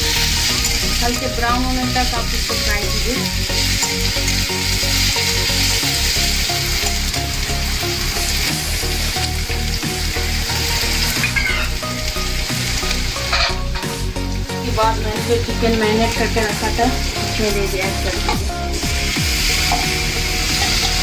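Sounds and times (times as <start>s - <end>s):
onions sizzling in hot oil: 0.0s - 21.0s
metal spatula stirring: 12.9s - 13.9s.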